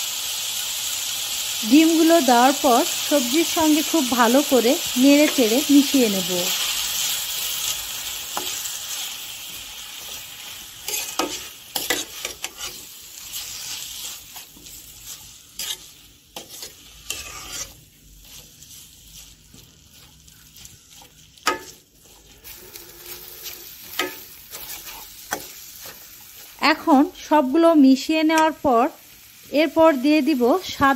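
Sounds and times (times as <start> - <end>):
eggs and vegetables frying: 0.0 - 30.9
metal spatula scraping a pan: 6.5 - 27.0.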